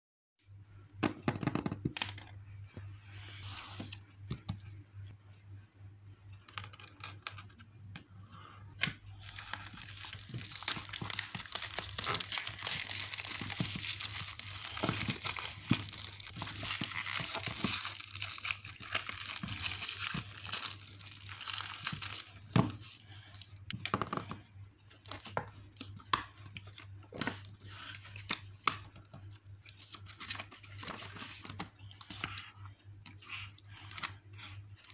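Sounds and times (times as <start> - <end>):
notebook pages turning: 9.2 - 22.2
packaging crinkling and tearing: 9.2 - 22.5.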